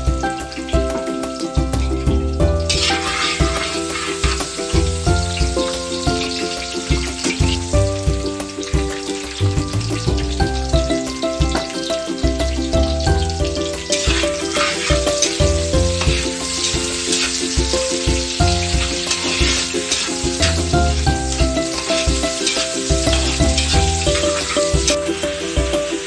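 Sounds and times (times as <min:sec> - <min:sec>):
background music with pulsing bass: 0:00.0 - 0:26.0
onions sizzling in pan: 0:00.0 - 0:26.0
spatula scraping pan: 0:02.8 - 0:07.6.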